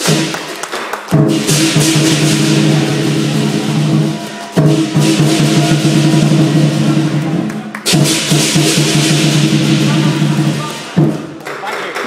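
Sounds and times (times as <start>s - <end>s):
cymbals clashing: 0.0s - 0.6s, 1.2s - 11.4s
large drum beating fast rhythm: 0.0s - 11.4s.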